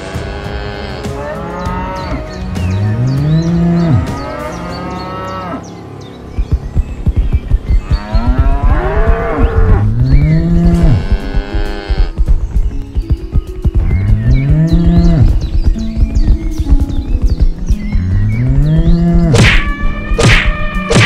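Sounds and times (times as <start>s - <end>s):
hoofbeats galloping: 6.3s - 20.0s.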